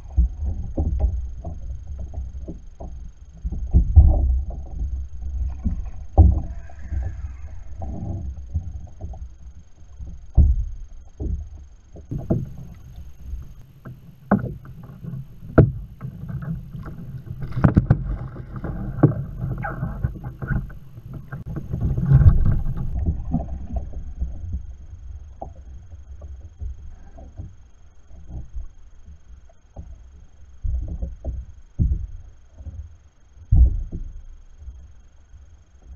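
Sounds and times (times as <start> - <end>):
wind rumble on microphone: 0.0 - 27.6
water splashing: 12.1 - 23.6.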